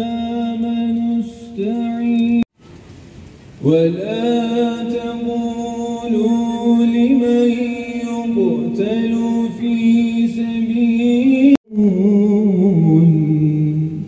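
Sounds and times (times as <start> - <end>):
man chanting religious recitation: 0.0 - 2.5, 3.6 - 14.0.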